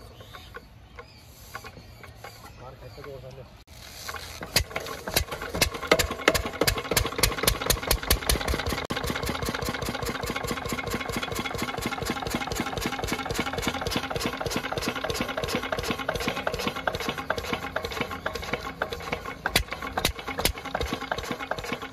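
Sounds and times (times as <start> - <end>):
diesel engine knocking: 4.6 - 21.9.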